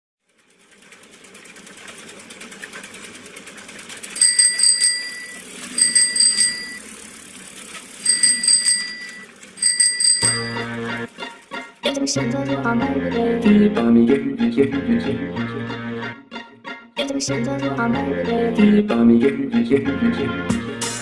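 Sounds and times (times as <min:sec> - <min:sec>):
bicycle freewheel ticking: 0:00.2 - 0:11.8
bicycle bell ringing: 0:04.2 - 0:07.1, 0:08.0 - 0:10.8.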